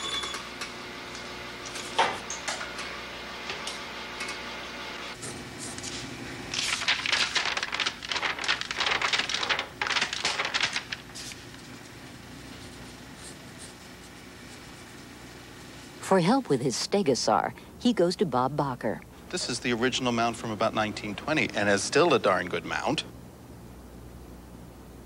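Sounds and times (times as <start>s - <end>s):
paper handling clicks: 5.2s - 12.0s
paper pages flipping rapidly: 5.2s - 14.9s.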